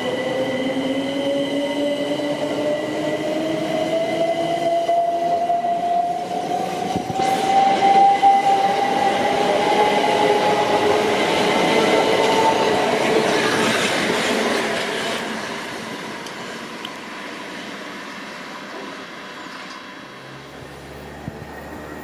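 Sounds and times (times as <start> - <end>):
wheels rumbling on rails: 6.2 - 22.0.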